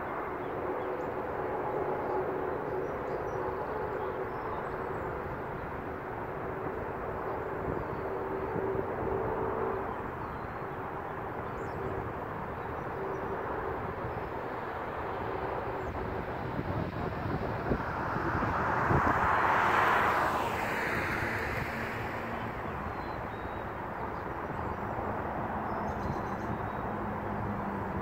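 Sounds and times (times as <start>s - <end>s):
outdoor background noise: 0.0s - 28.0s
distant vehicle passing: 13.2s - 28.0s.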